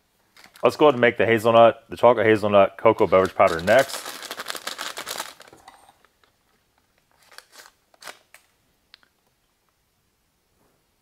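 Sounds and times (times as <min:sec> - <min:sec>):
pouch crinkling: 0:00.3 - 0:00.7, 0:03.0 - 0:08.5.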